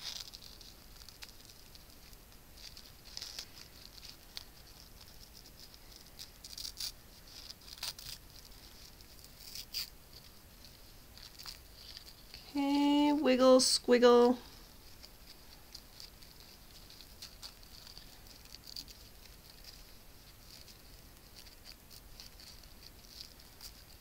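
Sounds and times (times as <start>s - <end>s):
metallic ribbon rustling: 0.0s - 24.0s.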